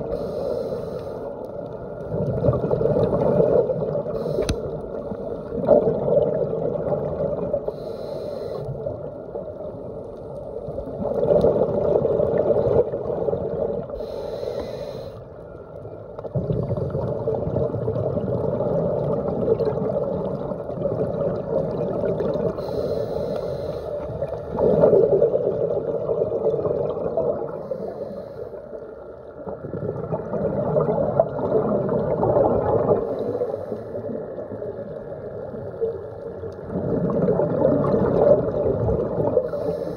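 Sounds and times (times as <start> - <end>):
scuba regulator breathing: 0.0 - 1.6, 2.9 - 5.6, 7.6 - 8.8, 13.9 - 15.4, 22.5 - 24.9, 27.5 - 29.0, 33.0 - 34.4, 39.4 - 39.9
exhaled bubbles rushing: 2.0 - 4.2, 4.8 - 7.7, 10.7 - 14.0, 16.2 - 22.7, 24.0 - 27.6, 29.4 - 33.4, 34.0 - 39.7.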